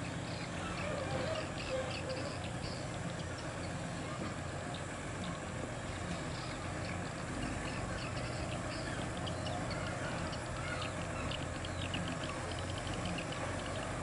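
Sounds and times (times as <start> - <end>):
truck diesel engine running: 0.0 - 14.0
light high ticks: 6.3 - 14.0.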